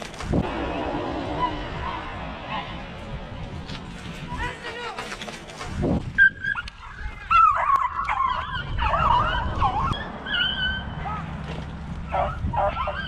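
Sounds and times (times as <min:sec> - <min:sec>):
hounds baying: 0:06.2 - 0:11.3, 0:12.0 - 0:13.0.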